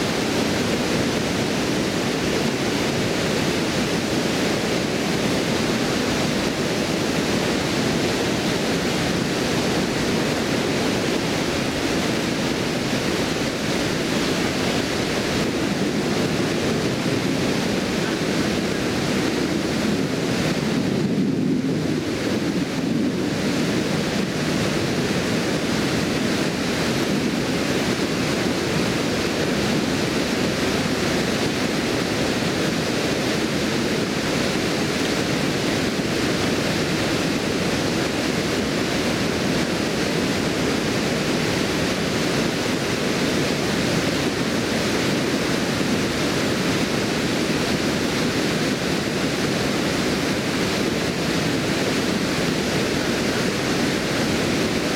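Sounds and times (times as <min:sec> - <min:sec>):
water rushing over a weir: 0:00.0 - 0:54.9.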